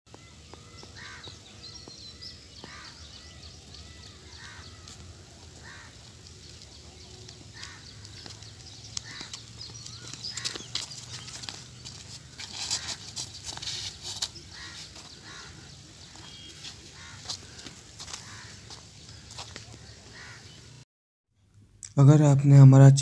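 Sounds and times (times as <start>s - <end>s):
higher bird chirps: 14.3s - 17.6s.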